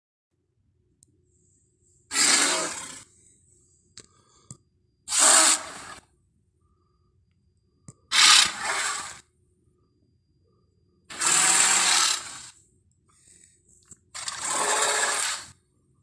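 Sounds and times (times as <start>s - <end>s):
harsh breathy dinosaur roar: 2.1s - 3.2s.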